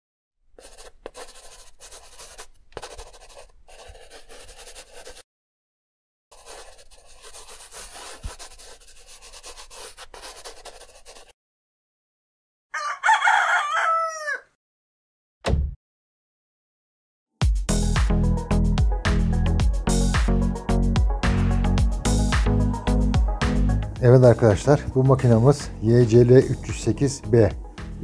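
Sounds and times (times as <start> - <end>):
marker pen scratching: 0.6 - 5.2, 6.3 - 11.4
rooster crowing: 12.7 - 14.6.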